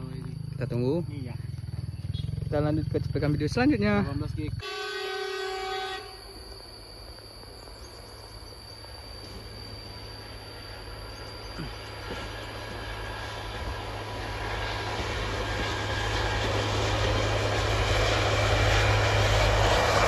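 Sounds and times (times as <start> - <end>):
railcar engine drone: 0.0 - 20.0
train wheel noise: 4.6 - 20.0.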